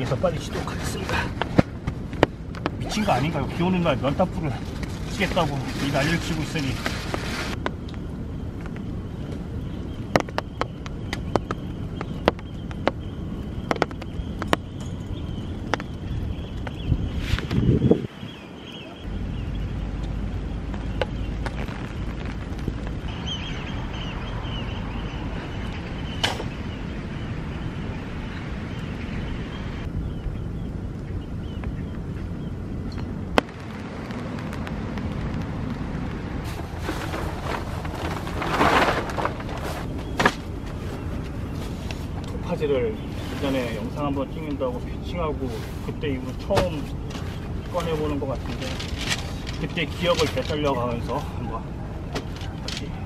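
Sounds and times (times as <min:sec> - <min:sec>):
steady low rumble: 0:00.0 - 0:53.0
steady outdoor rush: 0:00.0 - 0:53.0
tarp fabric rustling: 0:02.9 - 0:07.6, 0:21.5 - 0:23.1, 0:36.4 - 0:44.0, 0:45.3 - 0:51.4.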